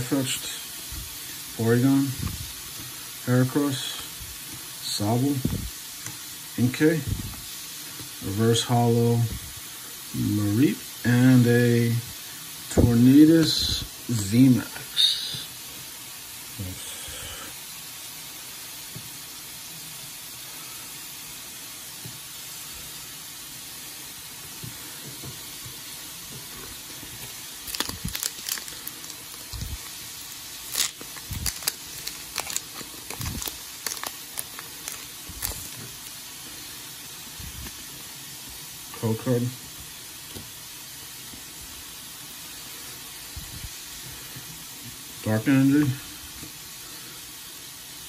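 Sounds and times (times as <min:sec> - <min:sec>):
steady hiss: 0:00.0 - 0:48.0
foil pack tearing and crackling: 0:27.2 - 0:36.2
cards being handled: 0:27.6 - 0:36.2.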